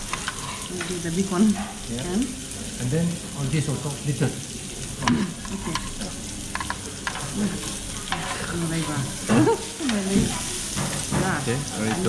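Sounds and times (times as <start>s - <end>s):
metal utensils clicking: 0.0s - 0.9s
meat sizzling on a grill pan: 0.0s - 12.0s.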